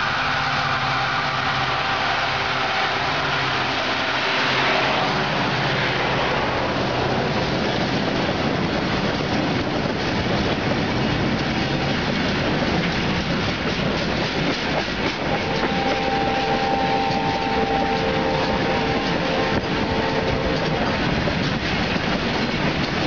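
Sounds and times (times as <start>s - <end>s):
steady whine: 0.0s - 7.4s, 14.9s - 22.9s
freight wagons rolling on rails: 0.0s - 23.0s.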